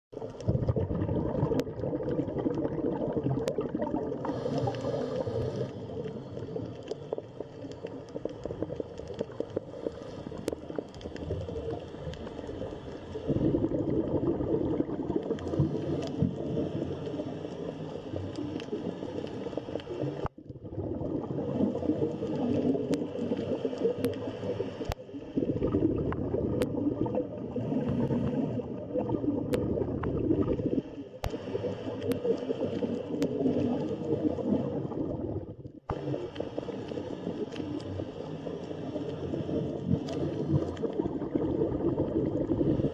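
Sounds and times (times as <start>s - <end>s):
muffled underwater rumble: 0.1s - 42.9s
sharp underwater clicks: 1.4s - 13.2s, 21.9s - 25.0s, 31.2s - 34.0s.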